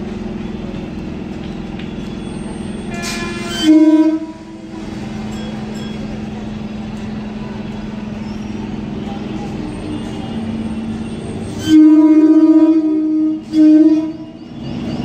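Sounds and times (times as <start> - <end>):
electric train hum: 0.0 - 15.0
train horn: 2.8 - 4.8, 11.5 - 14.4.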